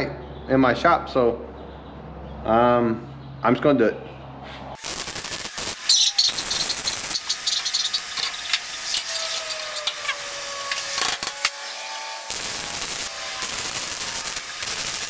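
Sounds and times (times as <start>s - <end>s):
arc welding crackling: 4.8s - 15.0s.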